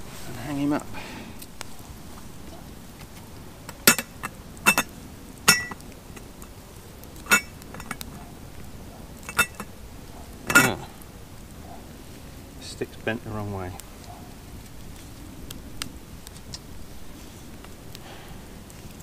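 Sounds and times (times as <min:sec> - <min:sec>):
metal pot clinking: 0:03.7 - 0:06.3, 0:07.2 - 0:08.1, 0:09.2 - 0:09.7, 0:10.5 - 0:10.8.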